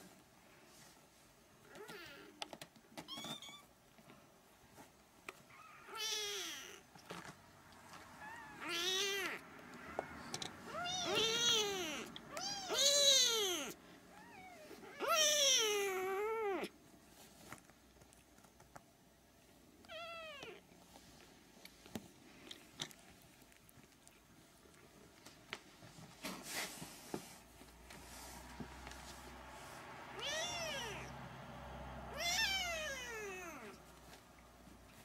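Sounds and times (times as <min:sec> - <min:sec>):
kittens meowing: 0:08.2 - 0:09.4, 0:10.6 - 0:16.7, 0:30.2 - 0:31.2, 0:32.1 - 0:33.8.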